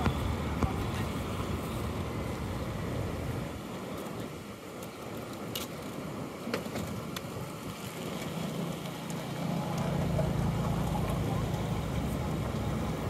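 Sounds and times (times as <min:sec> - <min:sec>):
water noise: 0:00.0 - 0:13.0
wind: 0:00.0 - 0:13.0
low motor drone: 0:08.7 - 0:13.0.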